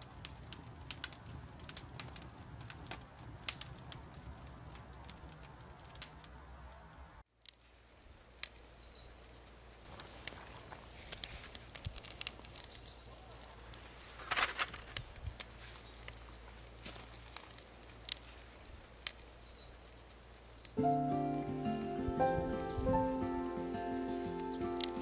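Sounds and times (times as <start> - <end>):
fire crackling and popping: 0.0 - 25.0
small birds chirping: 7.4 - 25.0.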